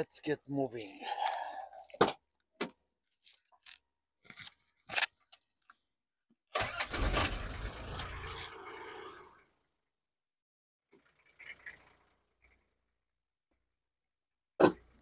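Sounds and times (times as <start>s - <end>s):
car engine starting and running: 6.5s - 9.8s, 10.9s - 13.1s.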